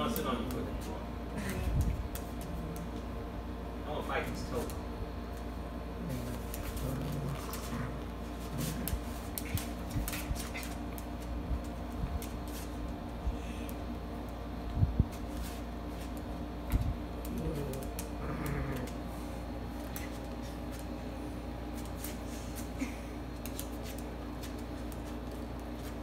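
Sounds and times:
dog claws clicking on floor: 0.0s - 3.0s, 6.1s - 13.1s, 15.1s - 19.0s, 19.8s - 20.9s, 23.3s - 26.0s
steady low hum: 0.0s - 26.0s.

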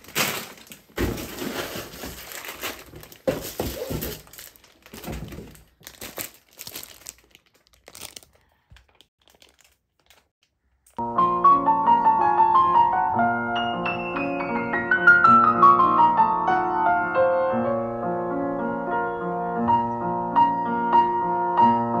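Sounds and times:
plastic bags crinkling: 0.0s - 11.0s
piano music: 11.0s - 22.0s.

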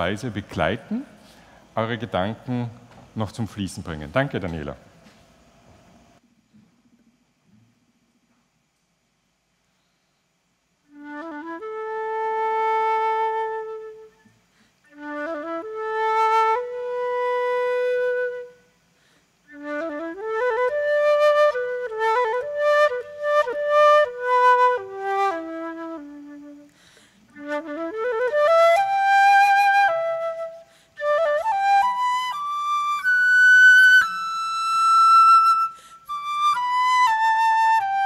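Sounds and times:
solo flute melody: 10.8s - 38.0s.

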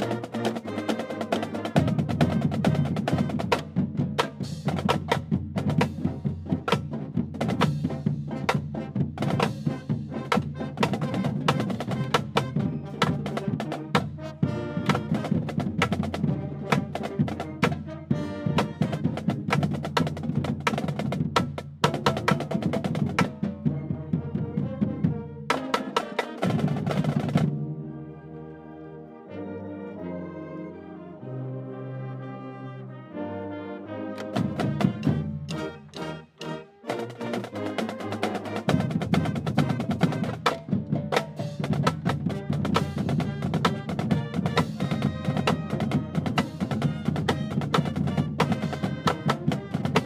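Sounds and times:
brass chords: 0.0s - 50.0s
marching band playing: 0.0s - 50.0s
drum beat: 1.7s - 23.7s, 34.4s - 50.0s.

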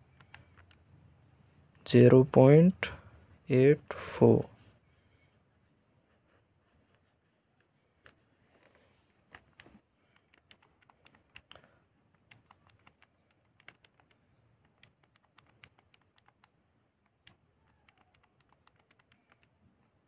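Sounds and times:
calculator keys clicking: 0.0s - 0.8s, 9.3s - 19.6s.

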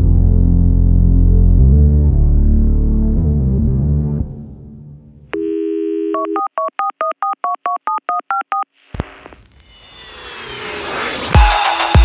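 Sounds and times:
background music: 0.0s - 5.3s
telephone dial tone: 5.4s - 8.6s
rising whoosh: 9.3s - 12.0s.

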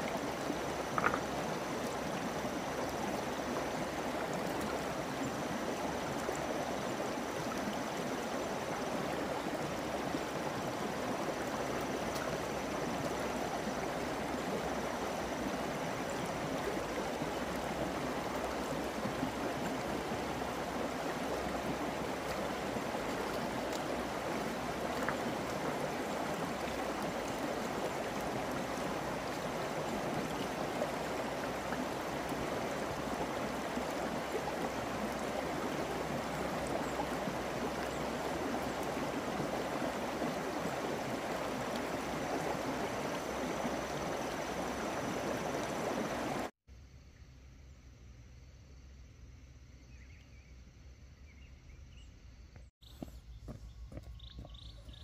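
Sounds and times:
flowing water rushing: 0.0s - 46.6s
faint ticks: 0.9s - 1.4s.

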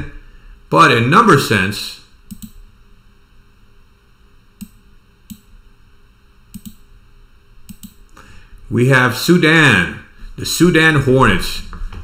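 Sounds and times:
computer mouse clicking: 2.3s - 2.6s, 4.6s - 5.5s, 6.5s - 6.8s, 7.7s - 8.0s.

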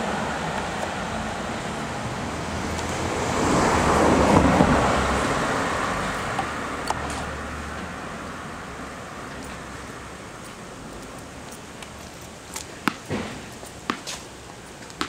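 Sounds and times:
vehicle passing: 0.0s - 10.9s
street traffic rush: 0.0s - 15.0s.

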